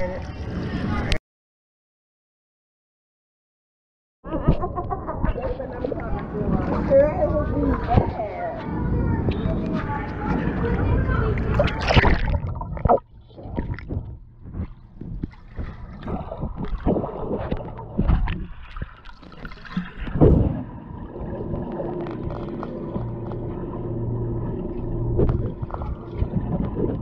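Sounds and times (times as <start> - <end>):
muffled underwater sloshing: 4.5 - 27.0
steady low hum: 5.3 - 18.8, 19.9 - 27.0
knocks in water: 11.5 - 20.7.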